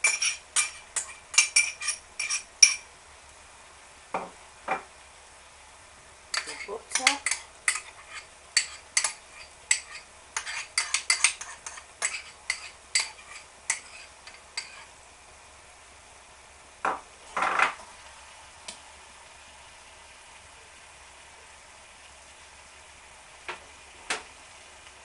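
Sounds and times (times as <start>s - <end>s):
spoon scraping pan: 0.0s - 2.8s, 6.4s - 15.0s
wooden spoon knocking on pan: 4.1s - 4.9s.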